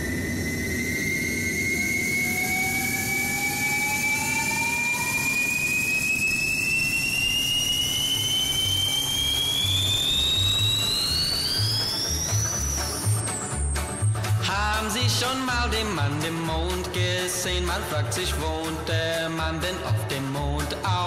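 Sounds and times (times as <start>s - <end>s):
rocket rushing roar: 0.0s - 14.4s
rising whistle: 0.0s - 16.2s.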